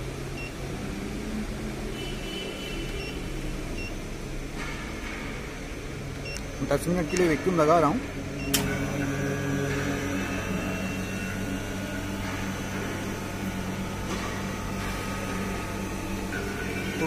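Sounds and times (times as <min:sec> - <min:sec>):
vacuum pump humming: 0:06.7 - 0:17.0.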